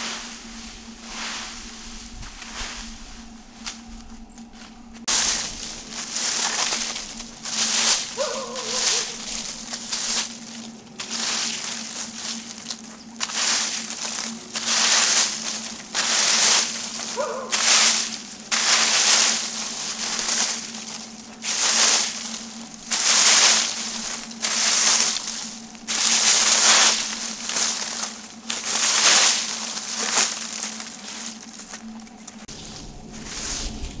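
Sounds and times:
rake scraping through dry leaves: 0:00.0 - 0:34.0.

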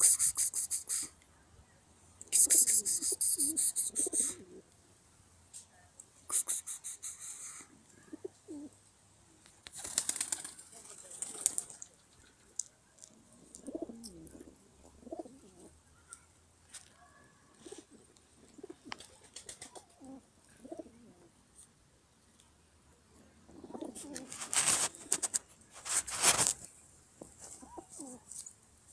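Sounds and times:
pigeons cooing: 0:02.3 - 0:04.7, 0:07.0 - 0:08.8, 0:13.3 - 0:15.8, 0:17.5 - 0:21.3, 0:23.3 - 0:24.4, 0:27.5 - 0:28.3
rustling noise: 0:23.9 - 0:28.9.

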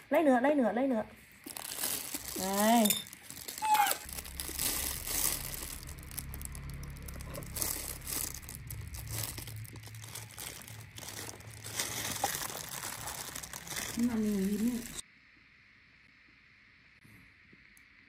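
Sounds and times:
plastic rustling and crinkling: 0:01.3 - 0:15.0.

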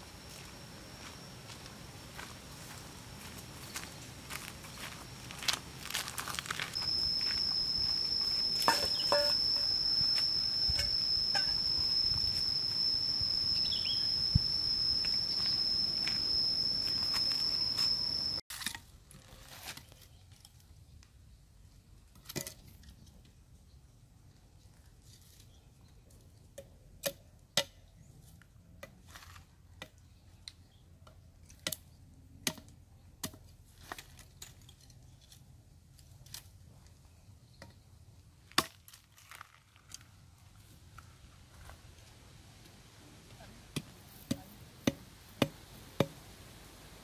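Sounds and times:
outdoor ambience: 0:00.0 - 0:47.0
high insect buzz: 0:03.6 - 0:18.4.

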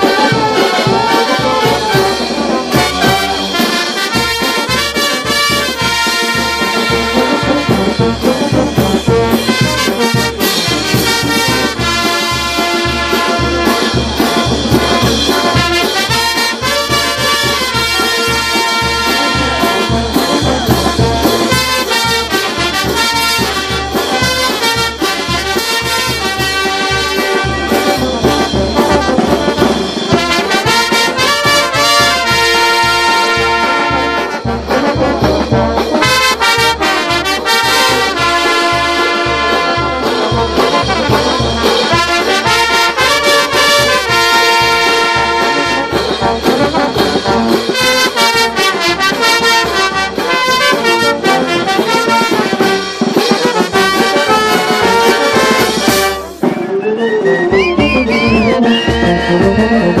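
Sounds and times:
bass drum and cymbals: 0:00.0 - 0:56.6
brass band playing: 0:00.0 - 1:00.0.

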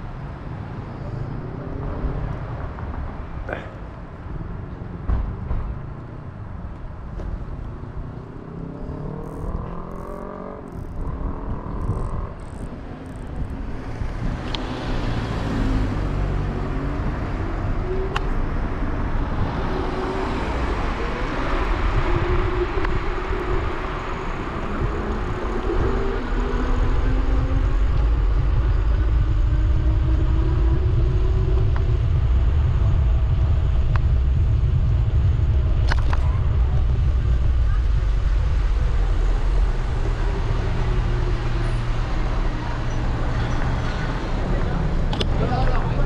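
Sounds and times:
passing vehicle engine: 0:00.0 - 0:46.0
steady low rumble: 0:00.0 - 0:46.0.

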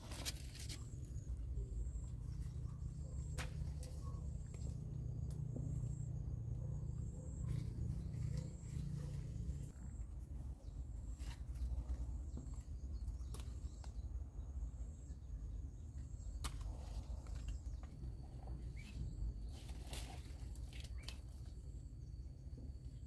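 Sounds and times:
bean vines rustling: 0:00.0 - 0:05.4, 0:16.3 - 0:21.7.

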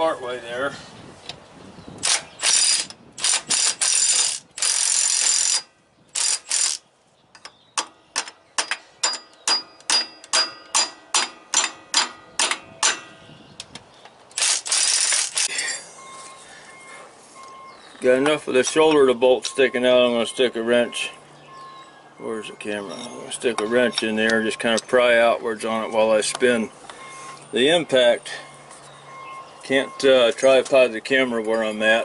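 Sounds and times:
impact wrench hammering on bolt: 0:07.4 - 0:13.2.

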